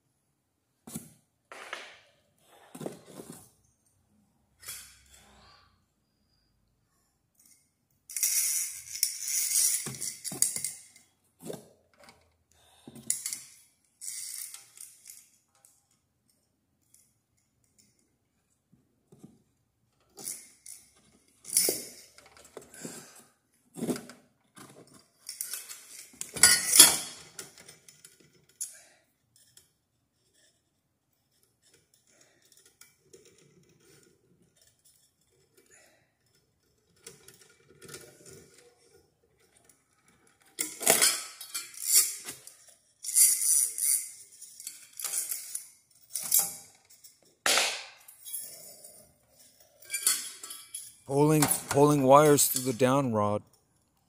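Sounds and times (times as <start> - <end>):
metal parts clinking and scraping: 7.4 - 11.1, 13.0 - 15.8, 24.6 - 28.8, 29.4 - 47.4, 48.0 - 51.7.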